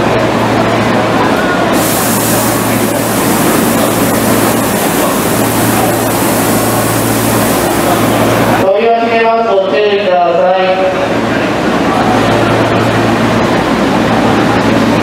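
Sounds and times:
train hiss and rumble: 0:01.7 - 0:08.6
bright hiss: 0:01.8 - 0:08.6.

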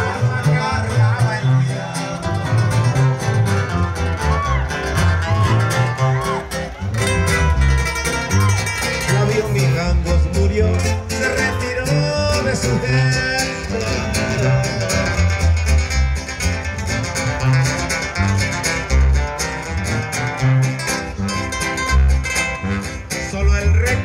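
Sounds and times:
live band music: 0:00.0 - 0:24.0
tuba bass line: 0:00.0 - 0:24.0
person singing: 0:09.0 - 0:15.4.

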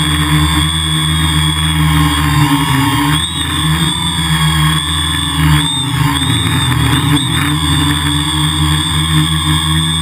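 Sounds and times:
drone motors whining: 0:00.0 - 0:10.0.

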